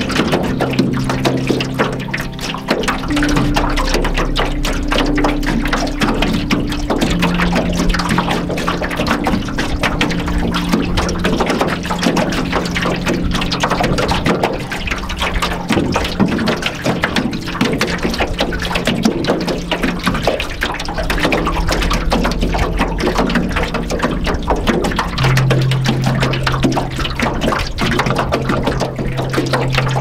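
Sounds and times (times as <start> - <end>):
ambient background music: 0.0 - 30.0
waves lapping against canoe hull: 0.0 - 30.0.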